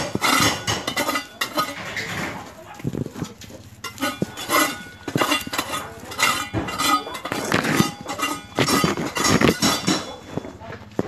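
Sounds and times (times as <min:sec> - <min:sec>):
metal tool scraping concrete: 0:00.0 - 0:10.5.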